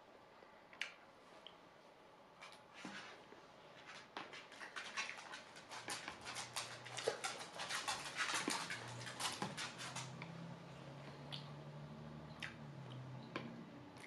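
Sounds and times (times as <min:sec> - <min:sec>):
wet chewing and mouth smacking: 0:11.0 - 0:11.5, 0:12.3 - 0:13.1.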